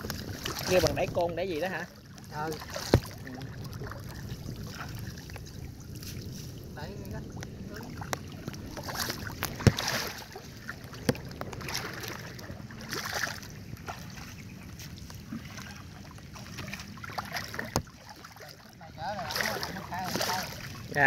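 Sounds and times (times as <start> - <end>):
water splashing and sloshing: 0.0 - 21.0
sharp knocks: 9.4 - 10.1.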